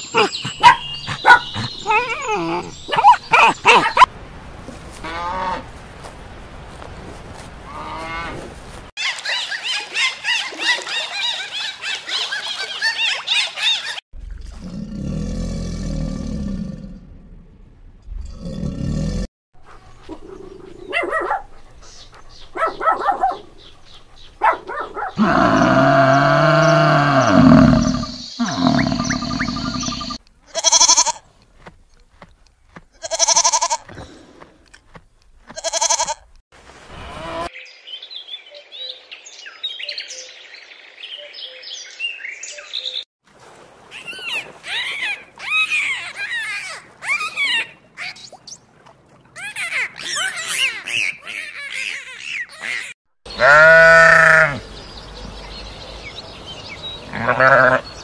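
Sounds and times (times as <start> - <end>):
loud drawn-out animal call: 25.1 - 31.2, 50.8 - 54.6, 57.1 - 57.9
goat bleating: 30.5 - 31.2, 33.0 - 33.9, 35.5 - 36.2, 53.3 - 54.6, 57.1 - 57.9.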